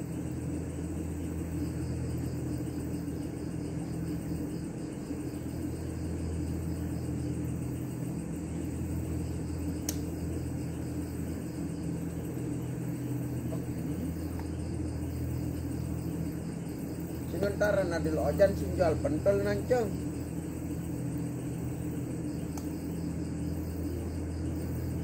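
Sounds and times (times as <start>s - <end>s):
low mechanical hum: 0.0s - 25.0s
sharp click: 9.8s - 10.1s, 22.5s - 22.8s.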